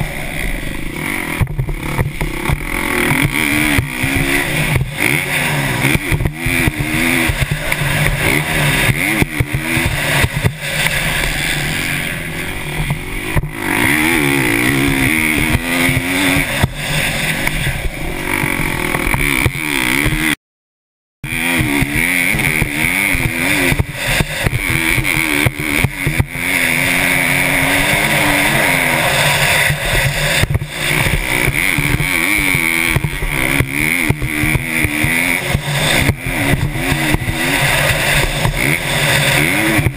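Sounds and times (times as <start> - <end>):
motocross bike engine revving: 0.0 - 20.4, 21.2 - 39.9.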